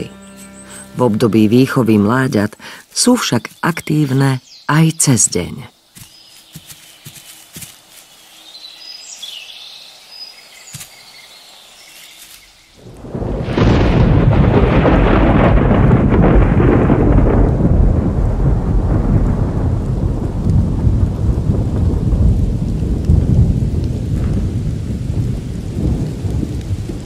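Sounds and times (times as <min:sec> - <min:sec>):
rolling thunder: 0:12.8 - 0:27.0.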